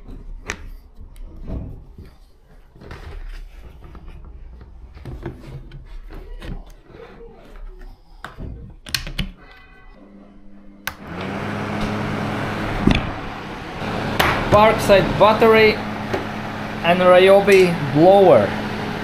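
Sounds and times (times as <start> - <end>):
fan running with air rush: 10.8 - 19.0.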